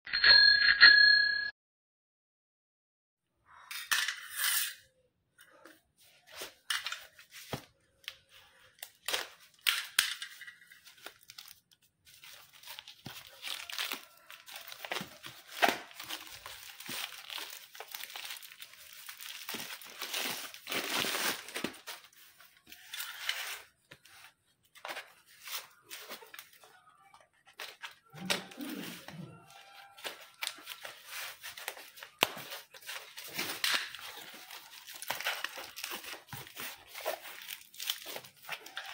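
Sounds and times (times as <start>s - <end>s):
plastic wrap tearing and crinkling: 10.8s - 24.0s, 27.4s - 38.9s.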